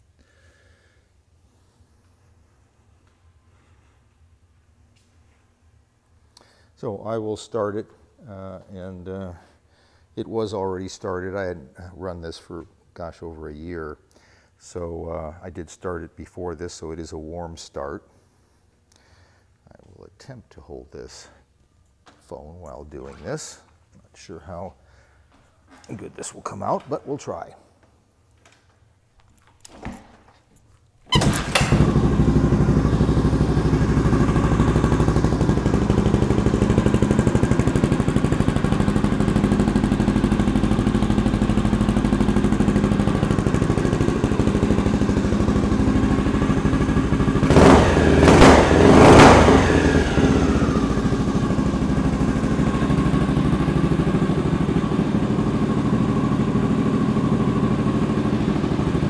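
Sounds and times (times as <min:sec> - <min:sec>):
motorcycle engine idling and revving: 0:31.2 - 0:59.0.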